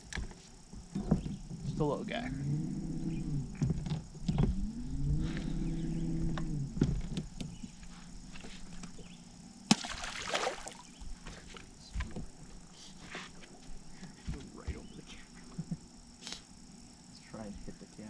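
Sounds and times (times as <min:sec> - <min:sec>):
electric motor whining: 0:01.0 - 0:09.2
hiss: 0:16.2 - 0:16.5.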